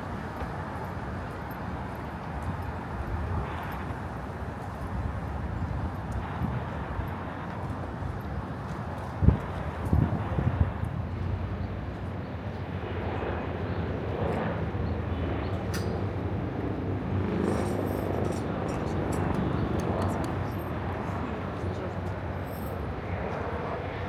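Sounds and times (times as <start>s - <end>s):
low traffic rumble: 0.0s - 24.0s.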